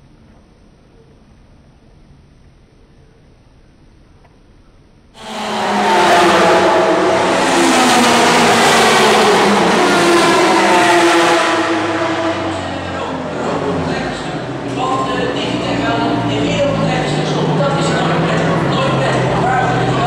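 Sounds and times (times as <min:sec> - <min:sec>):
racing car engines at high revs: 0:05.2 - 0:20.0.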